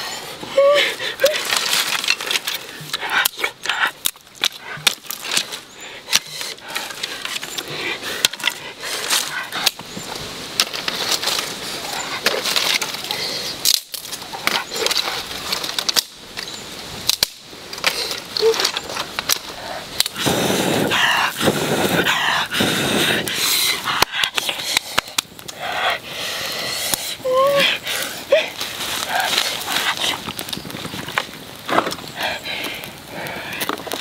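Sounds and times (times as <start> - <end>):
dry twigs snapping: 1.0 - 20.3, 23.2 - 34.0
person blowing on kindling: 17.8 - 34.0.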